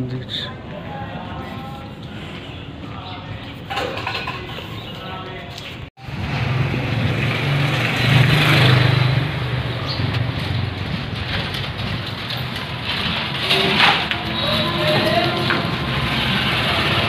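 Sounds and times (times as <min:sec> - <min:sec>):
vehicle engine passing close: 0:06.0 - 0:17.0.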